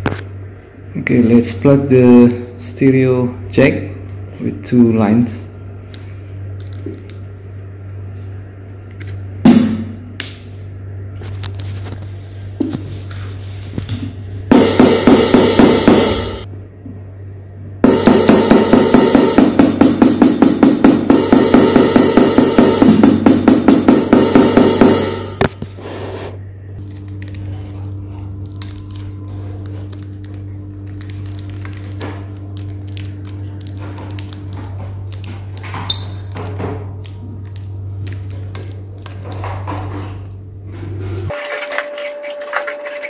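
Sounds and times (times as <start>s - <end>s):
electronic drum hits: 9.4s - 10.0s, 14.5s - 16.5s, 17.8s - 25.6s
stick striking pad: 9.4s - 10.4s, 14.5s - 16.5s, 17.8s - 25.6s.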